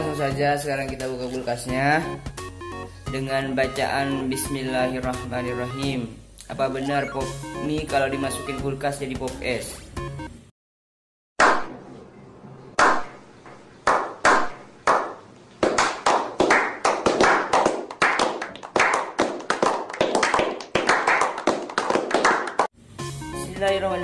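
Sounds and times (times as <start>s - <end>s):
people slow clapping: 13.8s - 22.7s.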